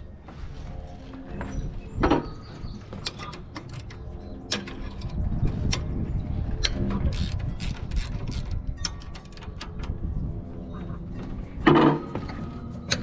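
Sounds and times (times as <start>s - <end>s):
low rumble: 4.0s - 13.0s
ratcheting wrench clicking: 6.6s - 10.0s.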